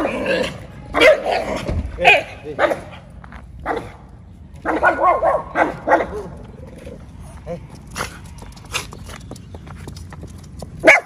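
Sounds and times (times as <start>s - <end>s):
small dog barking: 1.0s - 2.9s, 4.6s - 6.3s.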